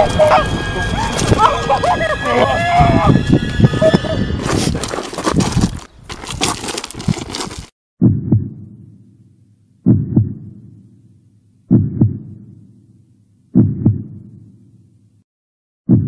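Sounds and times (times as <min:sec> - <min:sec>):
heartbeat thumps: 0:08.0 - 0:08.8, 0:09.8 - 0:10.7, 0:11.7 - 0:12.5, 0:13.6 - 0:14.4.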